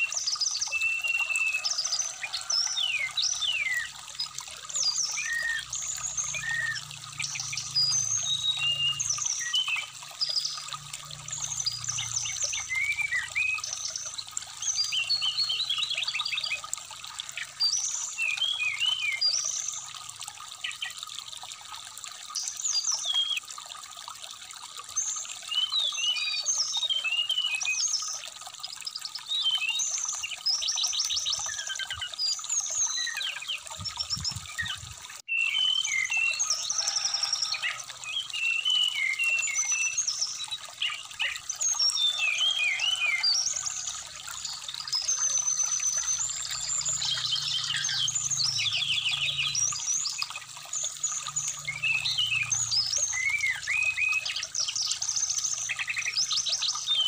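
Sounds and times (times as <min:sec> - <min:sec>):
bird singing whistled song: 0:00.0 - 0:01.6, 0:31.3 - 0:36.4, 0:38.1 - 0:43.4, 0:51.6 - 0:54.7
trickling shallow stream: 0:00.0 - 0:57.0.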